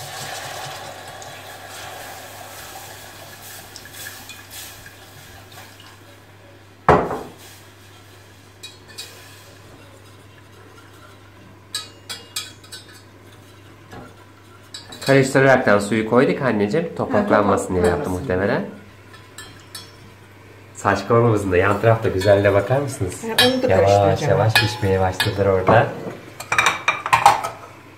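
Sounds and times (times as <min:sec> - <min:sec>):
water pouring into a pot: 0:00.0 - 0:06.1
whisk clinking against metal pot: 0:10.8 - 0:15.2, 0:19.1 - 0:20.1.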